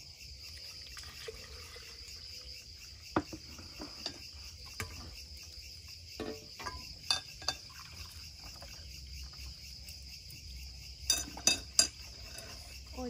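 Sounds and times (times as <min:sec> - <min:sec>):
crickets chirping: 0:00.0 - 0:13.0
juice pouring into glass: 0:00.6 - 0:02.4, 0:07.1 - 0:08.9
glassware and utensils clinking: 0:06.2 - 0:08.1, 0:11.0 - 0:12.9.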